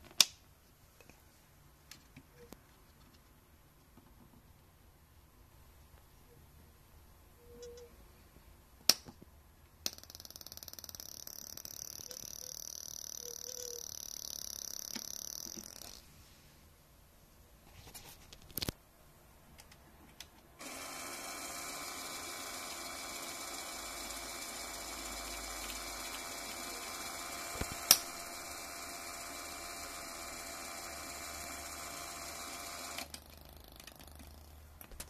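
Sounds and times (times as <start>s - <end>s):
small electric motor whining: 20.6s - 33.1s.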